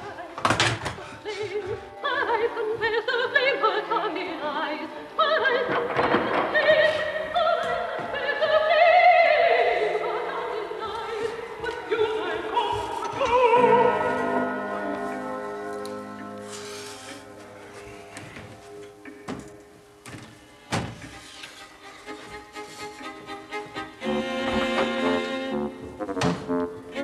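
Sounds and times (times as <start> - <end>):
opera singer with vibrato: 0.0 - 15.7
orchestra on gramophone record: 1.8 - 27.0.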